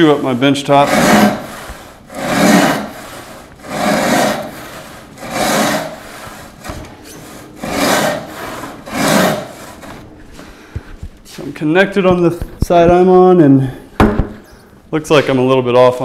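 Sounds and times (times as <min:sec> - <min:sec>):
hand saw rasping through wood: 0:00.0 - 0:10.0.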